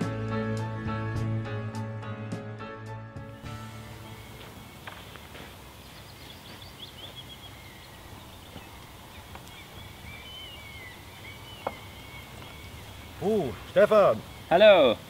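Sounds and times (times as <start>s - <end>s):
outdoor background hiss: 3.2s - 15.0s
small birds chirping: 3.4s - 15.0s
faint clicks: 8.5s - 9.6s.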